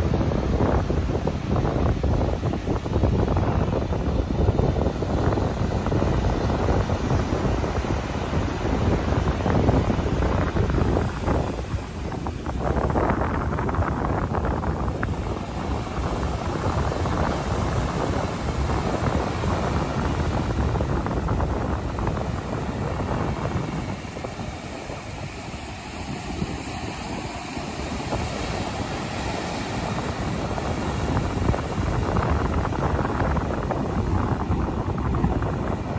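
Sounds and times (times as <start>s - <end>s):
surf washing onto beach: 0.0s - 35.9s
wind buffeting microphone: 0.0s - 35.9s.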